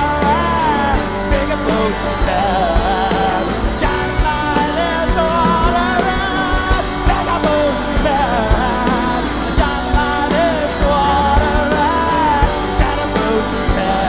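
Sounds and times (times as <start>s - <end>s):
rock band playing live: 0.0s - 14.0s.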